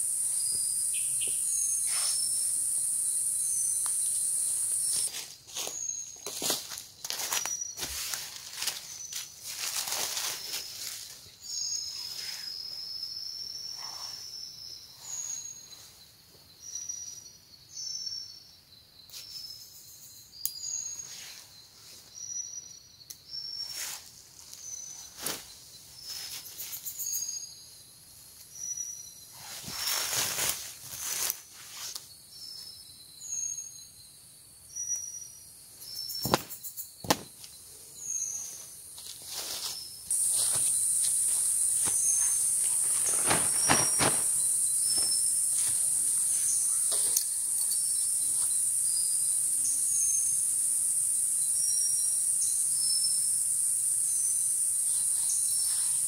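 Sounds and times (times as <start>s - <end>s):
high insect hiss: 0.0s - 56.0s
rustles: 0.3s - 13.0s, 23.6s - 27.4s, 28.2s - 32.8s, 35.8s - 49.2s, 54.5s - 56.0s.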